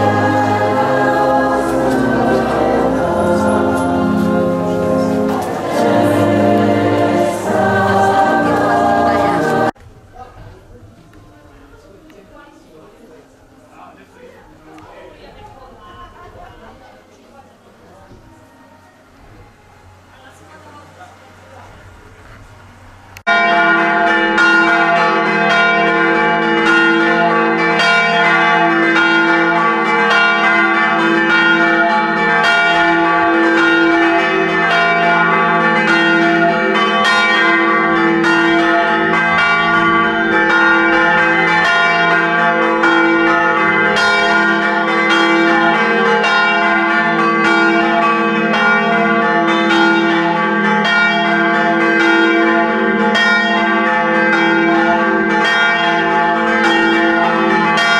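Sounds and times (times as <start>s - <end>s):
church bells pealing: 0.0s - 9.8s, 23.2s - 57.9s.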